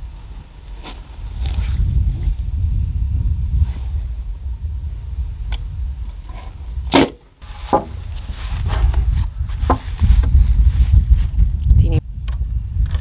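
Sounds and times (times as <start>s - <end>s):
wind rumble on microphone: 0.0s - 13.0s
nail gun firing: 6.9s - 7.9s
wood knocks: 7.6s - 8.0s, 9.6s - 9.9s.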